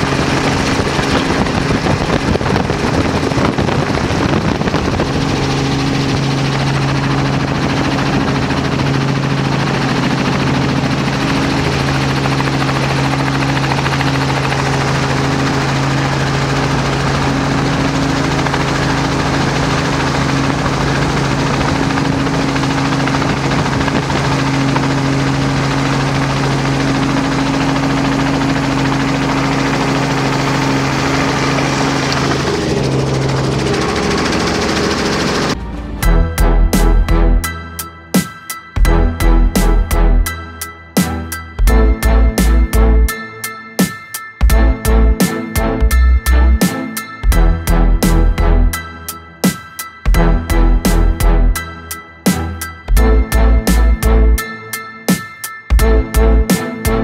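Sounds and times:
wind noise: 0:00.0 - 0:35.6
motorboat engine droning: 0:00.0 - 0:37.8, 0:50.1 - 0:54.8, 0:55.7 - 0:57.0.

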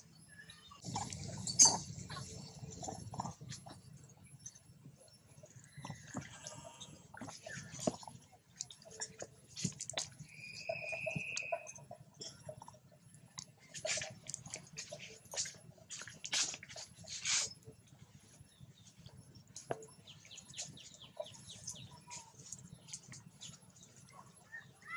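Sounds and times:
monkeys scuffling: 0:13.6 - 0:17.7.

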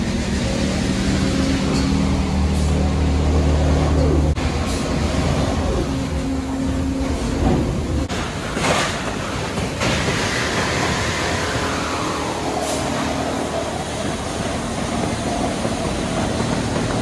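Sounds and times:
industrial machinery drone: 0:00.0 - 0:17.0.

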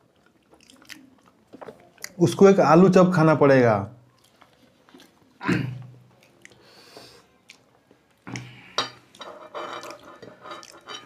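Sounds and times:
mouth noises of eating: 0:00.0 - 0:02.4, 0:04.1 - 0:09.2.

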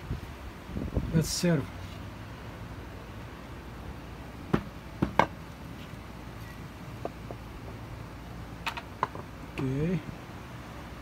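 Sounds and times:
steady low hum: 0:00.0 - 0:11.0
cutting board knocking on stone: 0:04.5 - 0:05.3.

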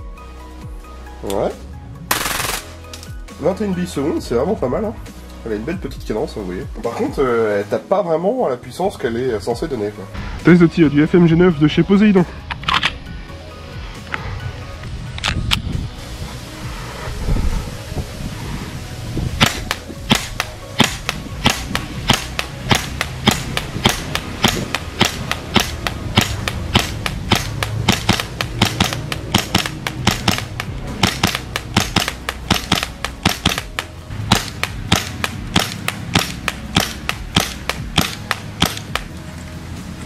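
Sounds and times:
airsoft gun shots: 0:02.1 - 0:02.8, 0:19.4 - 0:39.1.

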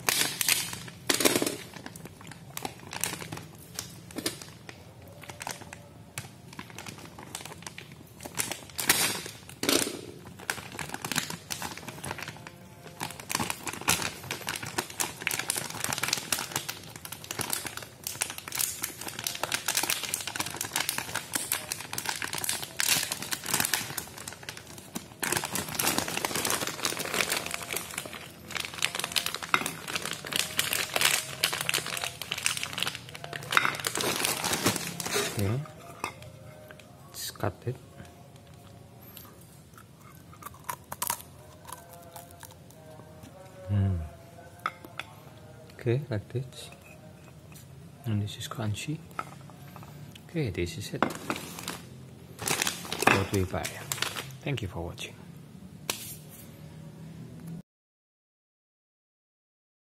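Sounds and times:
plastic snack bag crinkling: 0:00.0 - 0:37.0, 0:40.1 - 0:42.9, 0:50.7 - 0:54.7
hard snacks shifting in bag: 0:06.5 - 0:35.9, 0:51.0 - 0:54.4.

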